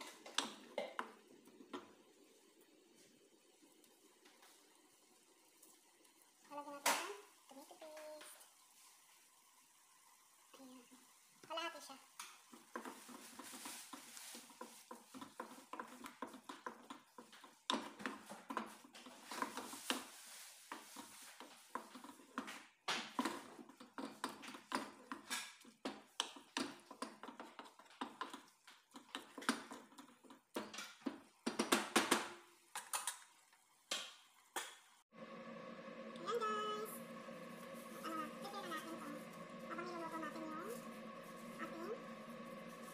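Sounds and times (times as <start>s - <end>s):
wooden spatula scraping a pot: 12.5s - 22.4s, 23.2s - 30.6s, 37.0s - 42.9s.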